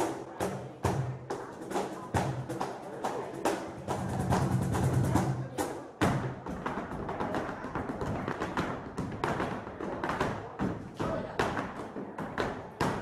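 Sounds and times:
flamenco music: 0.0 - 13.0
shoes tapping and stamping floor: 6.0 - 13.0.

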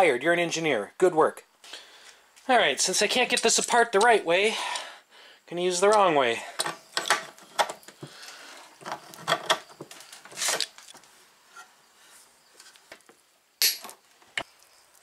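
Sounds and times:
tools clanking and scraping on metal: 5.9 - 11.8.

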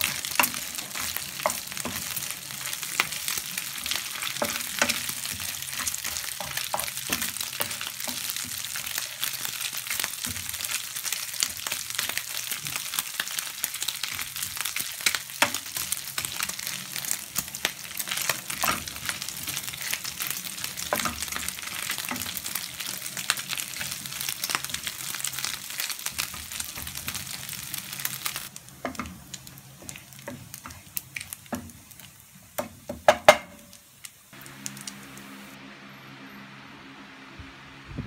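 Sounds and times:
bacon sizzling in frying pan: 0.0 - 35.6
spatula tapping on pan: 32.6 - 33.8
low steady hum: 34.3 - 38.0.

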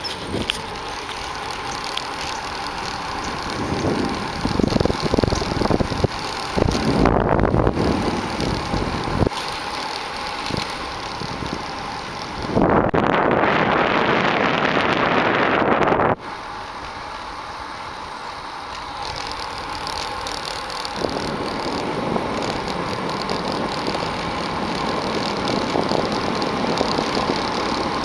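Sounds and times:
motorcycle engine running: 0.0 - 14.6, 18.9 - 28.0
wind rushing over microphone: 3.2 - 9.4, 10.4 - 16.3, 20.9 - 28.0.

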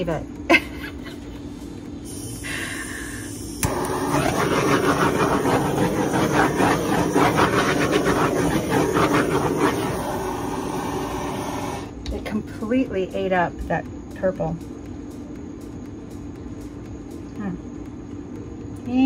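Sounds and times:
heat tool rushing noise: 2.0 - 12.0.

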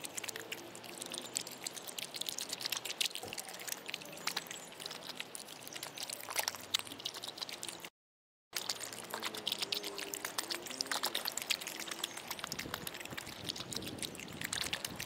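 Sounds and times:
dog crunching and slurping food: 0.0 - 7.9, 8.5 - 15.0.

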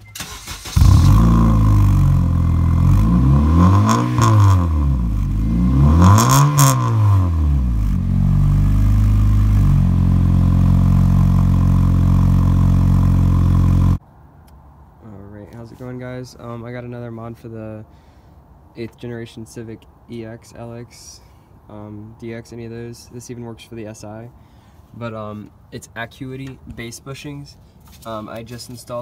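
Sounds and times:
car engine revving: 0.2 - 14.0.

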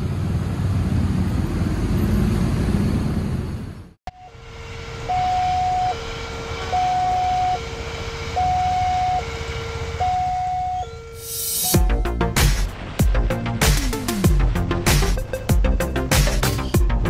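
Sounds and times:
passing train rumble: 0.0 - 16.1
road traffic: 0.0 - 17.0
level crossing alarm tones: 4.1 - 12.2.

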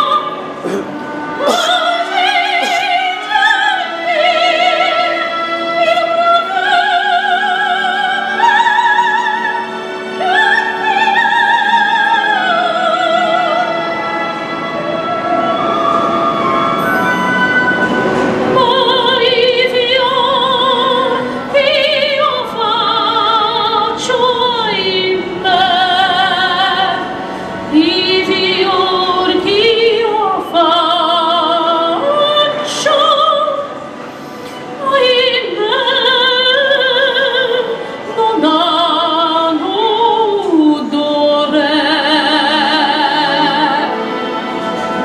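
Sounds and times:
woman singing into microphone: 0.0 - 13.9, 18.5 - 33.8, 34.7 - 44.1.

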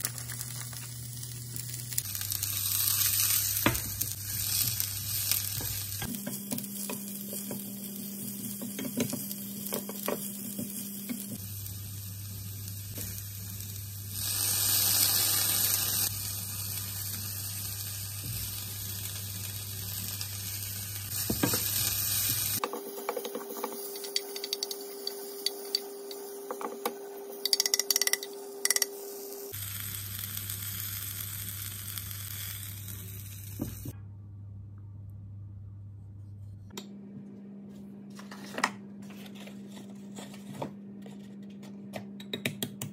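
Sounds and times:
vegetables sizzling in a pan: 0.0 - 33.9.

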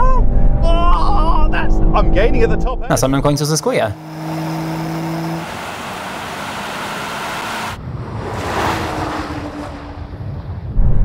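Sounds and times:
wind and road noise: 0.0 - 11.0
passing car rush: 2.9 - 10.8.

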